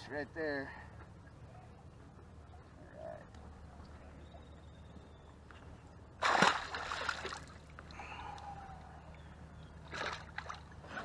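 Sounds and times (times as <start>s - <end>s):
fish splashing into water: 6.2s - 8.0s.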